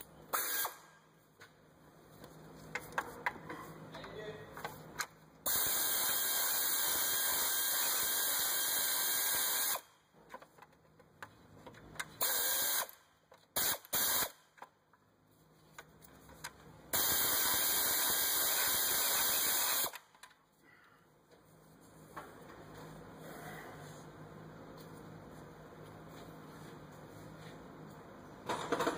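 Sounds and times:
power ratchet spinning: 5.5 - 9.8, 12.2 - 13.0, 17.0 - 20.1.

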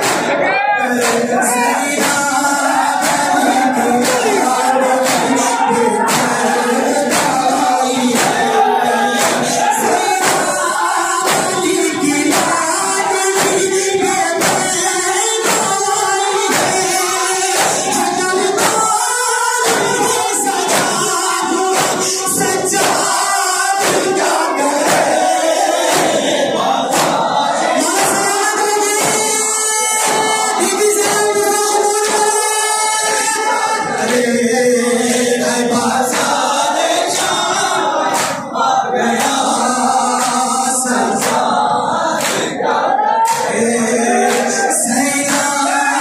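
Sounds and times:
hands striking chests: 0.0 - 0.4, 4.0 - 8.5, 23.8 - 24.2, 25.8 - 26.3, 26.9 - 27.3, 42.2 - 42.6
men chanting in chorus: 0.0 - 46.0.

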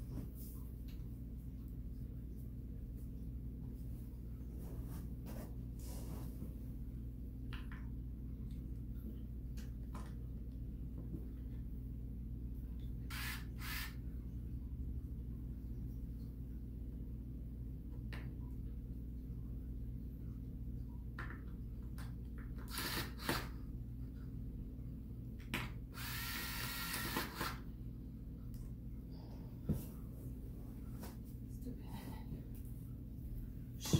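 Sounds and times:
cordless screwdriver whirring: 13.1 - 14.0, 22.7 - 23.5, 26.0 - 27.6.

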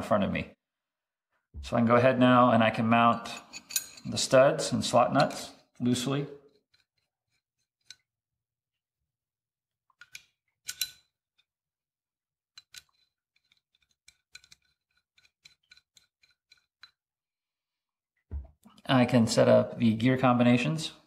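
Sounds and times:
small steel parts clinking: 3.3 - 4.1, 10.0 - 11.1.

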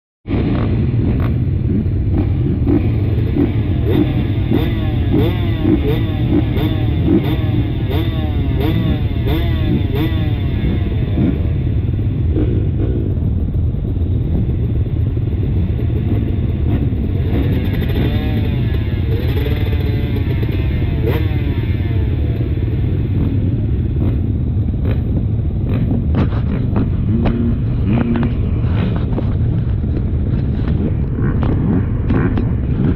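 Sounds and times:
motorcycle engines revving: 0.3 - 32.9
wind buffeting microphone: 22.5 - 32.9.

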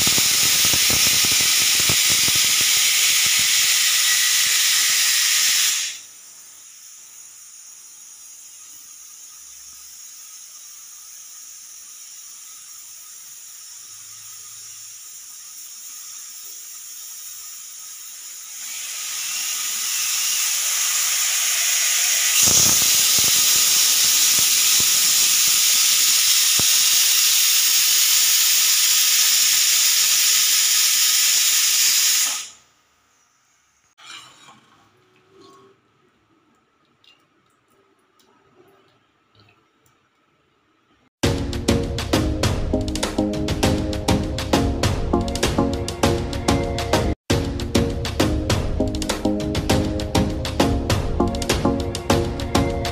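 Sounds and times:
pressure cooker whistle: 0.0 - 15.1, 18.5 - 32.6
pressure cooker steam hiss: 0.0 - 34.0.

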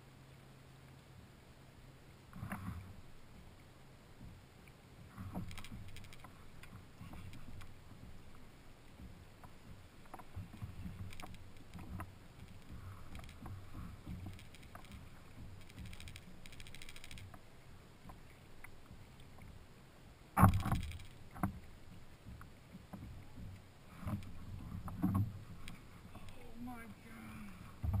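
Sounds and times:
water sloshing against plastic hull: 2.3 - 16.5, 20.4 - 28.0
fishing reel clicking: 5.5 - 6.3, 11.0 - 13.5, 14.2 - 17.4, 20.6 - 21.3.

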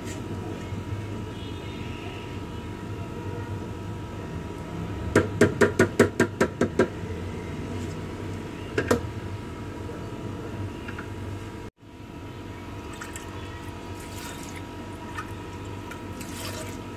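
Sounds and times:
steady low hum: 6.8 - 16.9.

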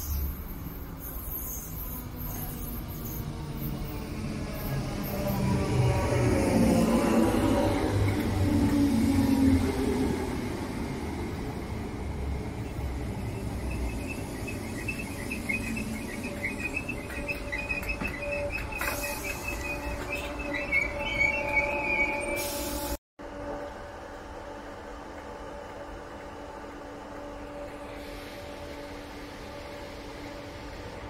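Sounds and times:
wheels squealing on rails: 0.0 - 23.0
electric train rumbling: 0.0 - 31.0.

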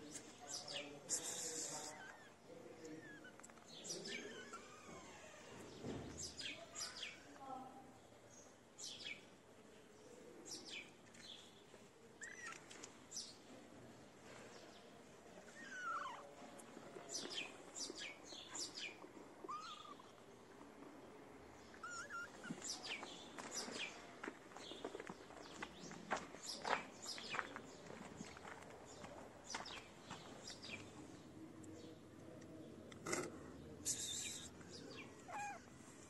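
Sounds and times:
birds chirping: 0.1 - 7.6, 16.9 - 36.0
kitten mewing: 35.1 - 35.7.

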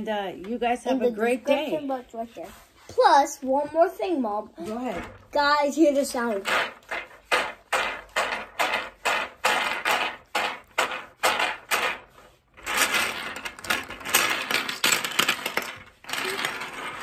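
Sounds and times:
plastic toys rattling: 4.6 - 17.0
toys clattering on wooden table: 6.0 - 17.0.

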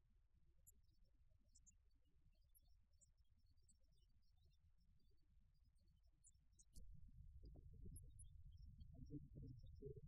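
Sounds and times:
faint low rumble: 6.8 - 10.0.

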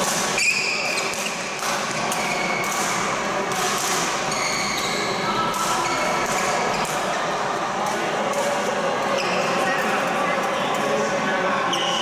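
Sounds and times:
racket hitting shuttlecock: 0.0 - 4.2
shoes squeaking on floor: 0.4 - 1.5, 4.3 - 6.8.

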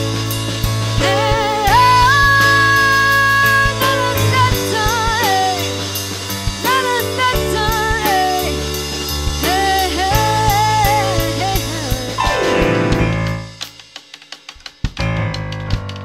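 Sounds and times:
keyboard chords and bass: 0.0 - 13.8, 15.0 - 16.0
drum kit beat: 0.0 - 16.0
woman singing: 1.0 - 5.9, 6.6 - 8.8, 9.4 - 12.6.

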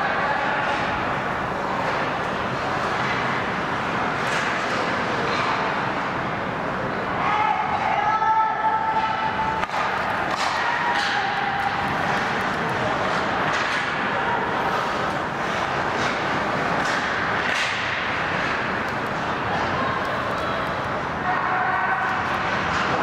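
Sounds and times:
skate blades scraping ice: 14.6 - 19.2.

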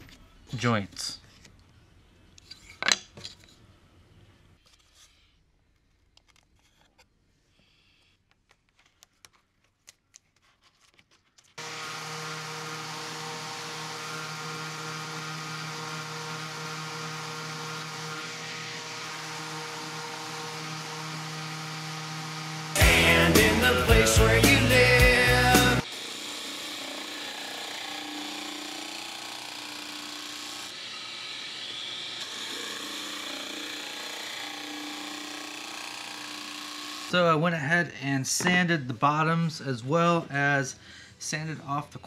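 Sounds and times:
orbit sander running on wood: 11.6 - 37.2.

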